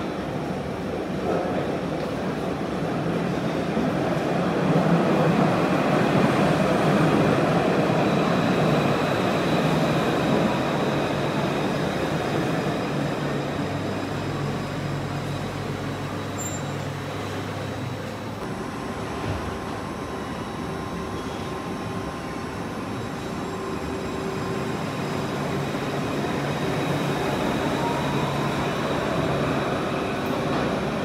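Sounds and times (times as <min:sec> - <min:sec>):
tram wheels rumbling on rail: 0:00.0 - 0:31.0
steady high whine: 0:18.4 - 0:31.0.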